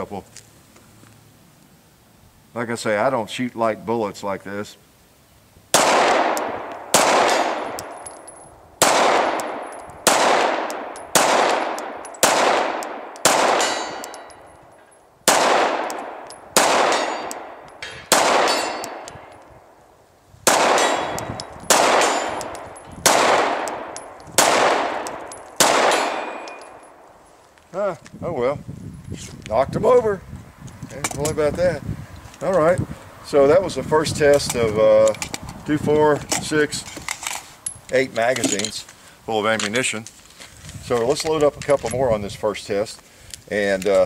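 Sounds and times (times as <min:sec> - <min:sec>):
pistol shots with echo: 0:05.7 - 0:14.5, 0:15.3 - 0:19.3, 0:20.4 - 0:27.0.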